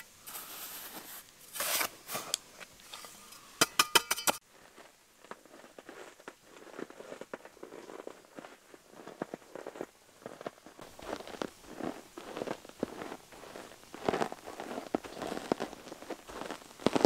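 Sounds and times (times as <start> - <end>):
boots crunching on granules: 4.5 - 17.0.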